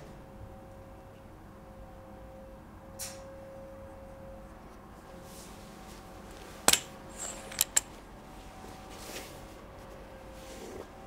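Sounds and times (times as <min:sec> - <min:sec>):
air rifle mechanical clicks: 0:06.3 - 0:07.9.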